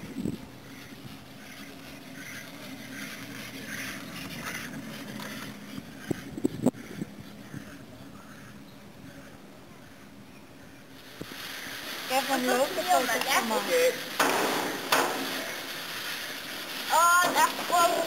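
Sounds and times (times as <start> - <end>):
chairlift cable humming: 11.0 - 18.0.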